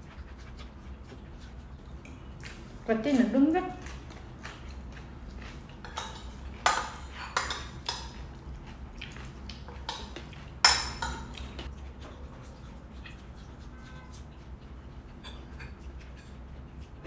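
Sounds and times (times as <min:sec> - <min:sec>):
fork clinking on ceramic plates: 0:05.8 - 0:08.2, 0:09.7 - 0:11.5.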